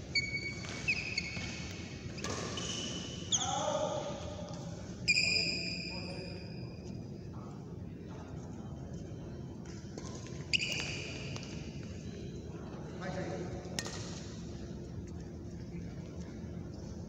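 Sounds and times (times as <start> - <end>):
sports shoes squeaking: 0.0 - 3.7, 5.0 - 6.8, 10.0 - 11.4.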